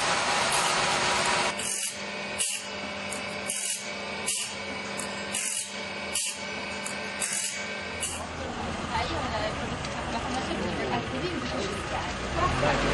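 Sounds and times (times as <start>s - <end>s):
saw sharpener grinding rasps: 0.0s - 8.4s
loud machine noise: 0.0s - 12.9s
motor hum: 0.0s - 12.9s.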